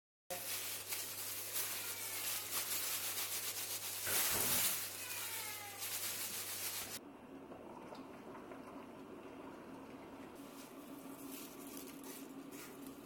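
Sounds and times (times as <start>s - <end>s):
plastic bag crinkling: 0.3s - 7.0s, 10.5s - 13.0s.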